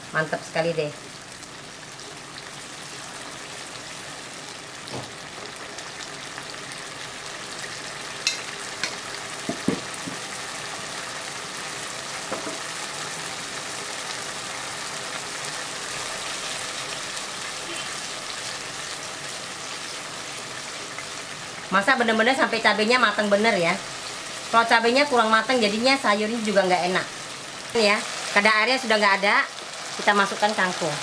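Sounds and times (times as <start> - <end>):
food sizzling in a wok: 0.0 - 31.0
spatula knocking against pan: 8.3 - 10.2, 12.3 - 12.6.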